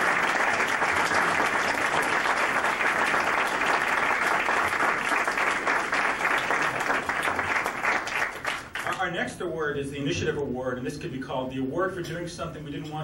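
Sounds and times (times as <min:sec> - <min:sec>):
people applauding: 0:00.0 - 0:09.0.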